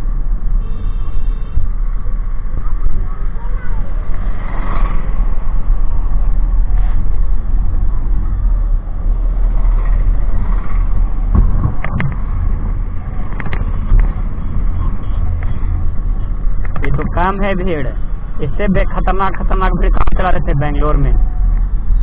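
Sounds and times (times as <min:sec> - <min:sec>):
motorcycle engine and road noise: 0:00.0 - 0:22.0.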